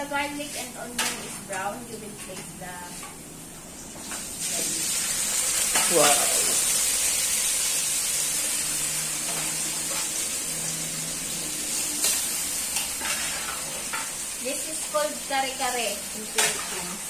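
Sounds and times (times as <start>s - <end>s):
meat sizzling in hot oil: 3.7s - 17.0s.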